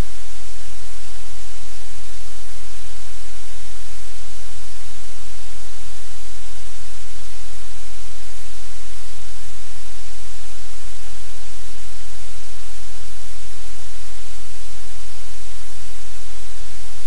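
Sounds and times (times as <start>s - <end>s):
static hiss: 0.0s - 17.0s.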